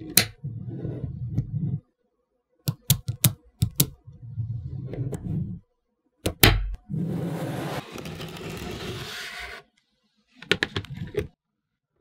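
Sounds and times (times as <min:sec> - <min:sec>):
balls scraping on hard surface: 0:00.0 - 0:01.9, 0:03.9 - 0:05.6, 0:06.9 - 0:09.7, 0:10.4 - 0:11.4.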